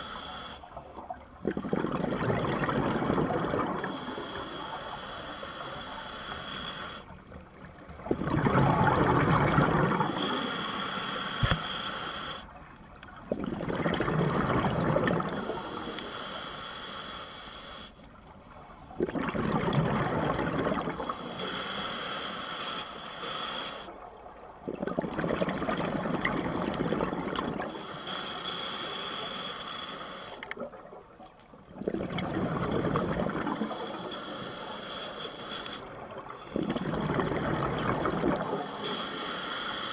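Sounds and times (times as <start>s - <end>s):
scuba regulator exhaled bubbles: 1.4s - 4.0s, 8.0s - 10.4s, 13.3s - 15.6s, 19.0s - 21.2s, 24.7s - 27.7s, 31.8s - 33.8s, 36.5s - 38.7s.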